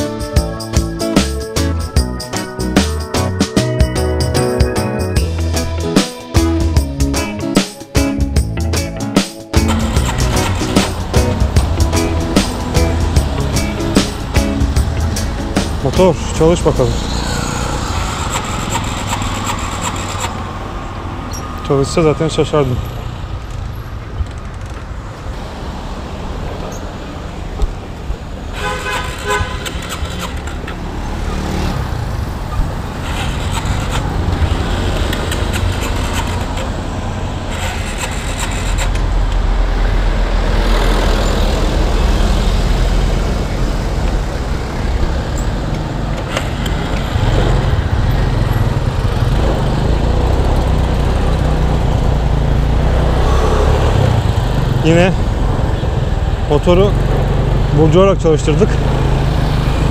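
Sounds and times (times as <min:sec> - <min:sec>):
traffic noise: 0:09.5 - 0:59.9
scooter engine running: 0:09.6 - 0:21.2, 0:28.6 - 0:39.5, 0:41.1 - 0:57.8
vehicle horn honking: 0:28.6 - 0:30.1.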